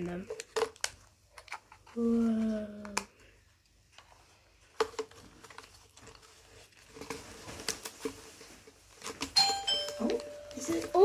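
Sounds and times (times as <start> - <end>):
packaging being handled: 3.9 - 11.0.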